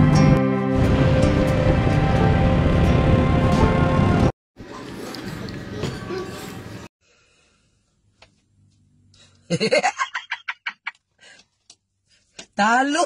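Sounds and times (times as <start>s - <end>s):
man laughing: 9.5s - 10.9s.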